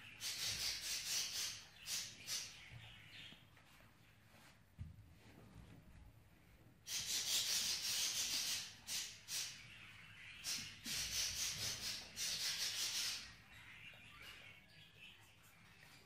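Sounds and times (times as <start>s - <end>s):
budgerigars chattering: 0.0s - 3.0s, 6.9s - 14.5s.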